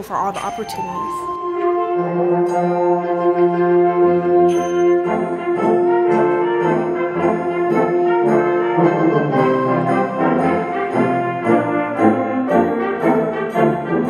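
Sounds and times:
concert band playing: 1.5s - 14.0s.

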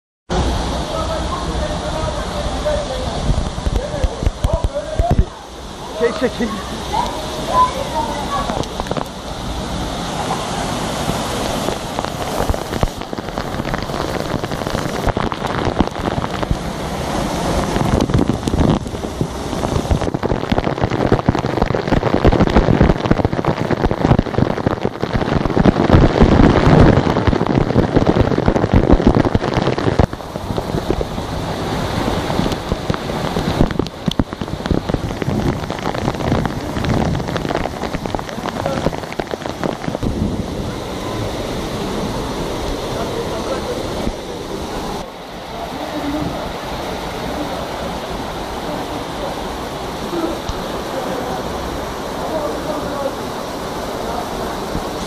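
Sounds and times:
waterfall pouring: 0.3s - 55.0s
spray pattering on microphone: 11.0s - 16.6s.

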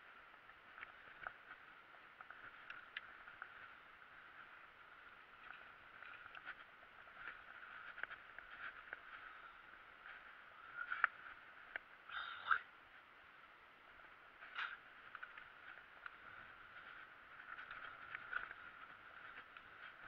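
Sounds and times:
bike rattling over dirt: 0.0s - 12.0s, 13.8s - 20.0s.

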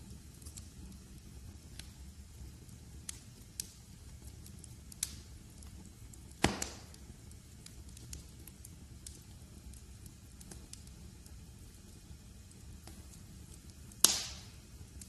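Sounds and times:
wood fire crackling: 0.0s - 15.0s
fire popping loudly: 2.4s - 15.0s.

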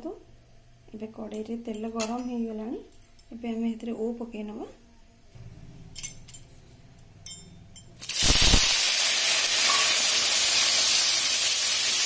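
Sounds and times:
light metal clinks: 5.8s - 8.0s
frying sizzle in hot oil: 8.0s - 12.0s.

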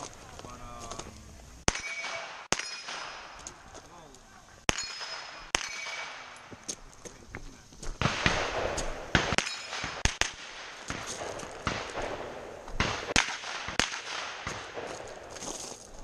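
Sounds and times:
rifle gunshots: 1.7s - 3.5s, 4.7s - 6.5s, 8.0s - 15.3s.

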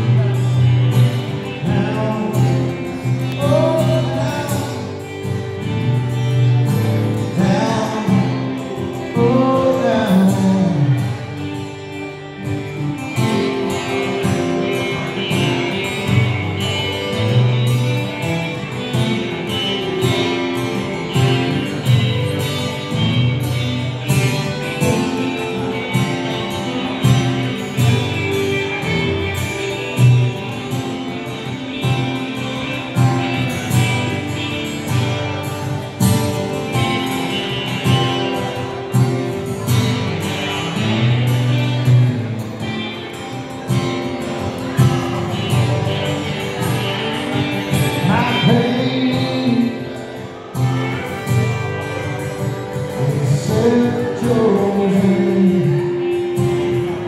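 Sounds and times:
live band with guitars: 0.0s - 57.0s.

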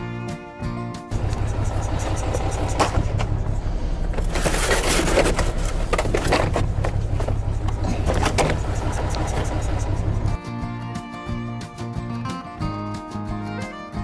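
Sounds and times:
plastic pipe scraping on metal: 1.1s - 10.3s
truck engine idling: 1.1s - 10.4s.

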